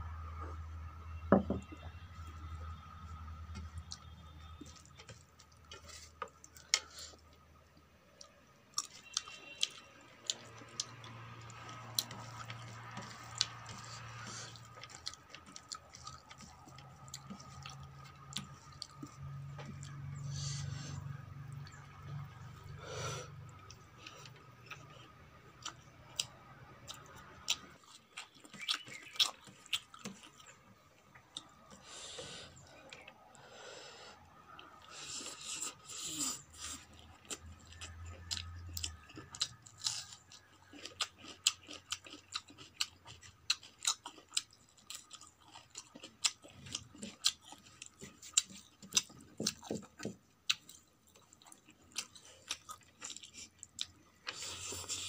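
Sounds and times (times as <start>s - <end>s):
wet chewing: 8.2s - 22.5s, 23.4s - 33.3s, 34.4s - 55.0s.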